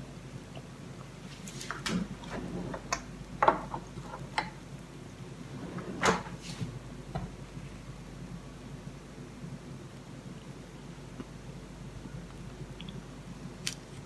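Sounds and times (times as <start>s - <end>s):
drawer pushed shut: 5.6s - 6.5s.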